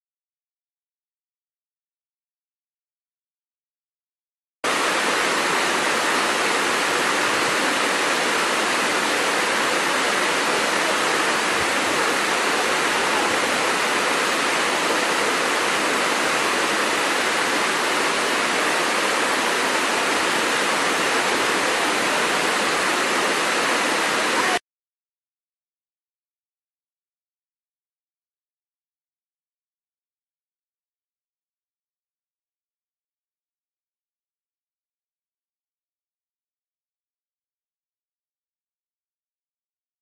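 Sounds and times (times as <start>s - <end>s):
waterfall rushing: 4.7s - 24.6s.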